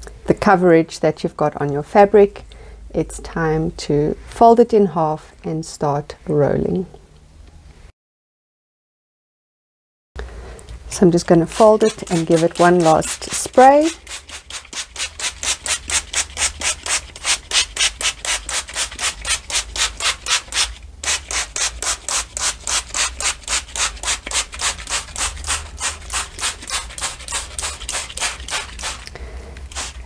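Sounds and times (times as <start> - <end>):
spray bottle hissing sprays: 11.6 - 16.5, 19.8 - 30.0.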